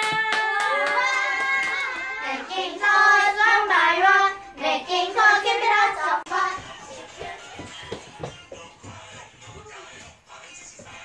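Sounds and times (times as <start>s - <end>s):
hand clap: 0.0s - 2.0s
children singing: 1.0s - 8.0s.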